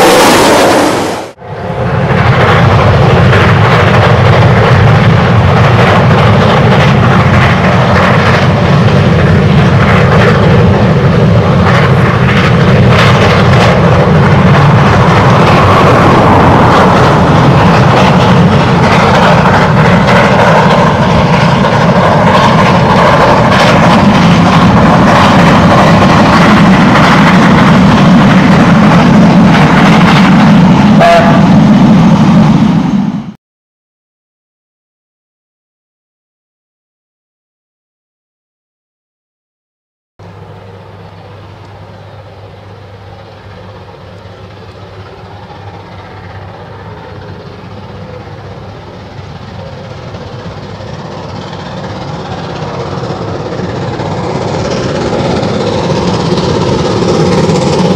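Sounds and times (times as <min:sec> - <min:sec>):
steam locomotive exhaust: 0:05.4 - 0:33.4, 0:40.2 - 0:57.9.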